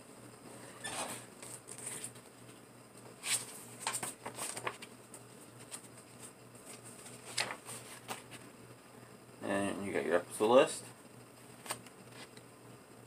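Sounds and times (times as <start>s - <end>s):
paper rustling and crinkling: 1.4s - 2.5s, 3.2s - 8.5s.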